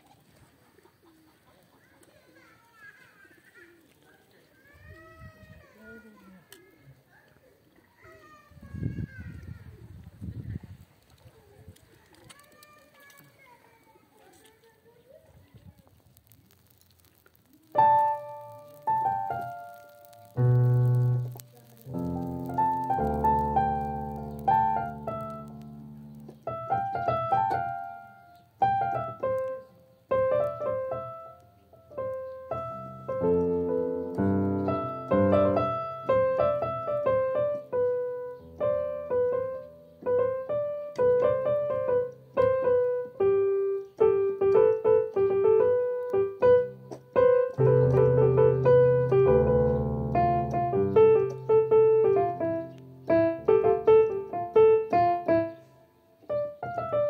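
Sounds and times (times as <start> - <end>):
keyboard piano melody: 17.7 - 57.0
low bass notes and chords: 20.2 - 27.9, 47.6 - 51.4.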